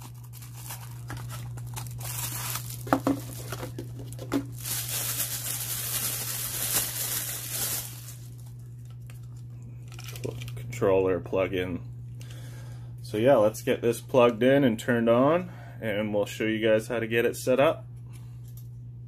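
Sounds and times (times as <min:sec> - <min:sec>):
plastic wrap crinkling: 0:00.0 - 0:10.6.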